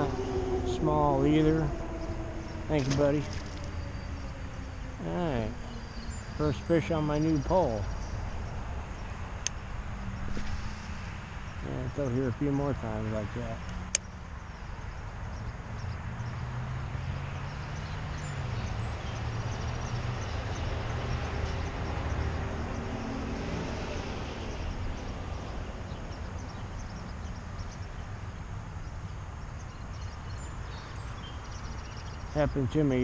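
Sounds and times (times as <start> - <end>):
low engine drone: 0.0 - 16.0.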